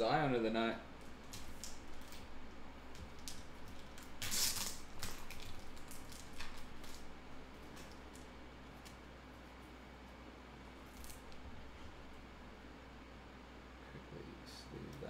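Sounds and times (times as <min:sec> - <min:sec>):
plastic packaging rustling: 0:01.0 - 0:09.0.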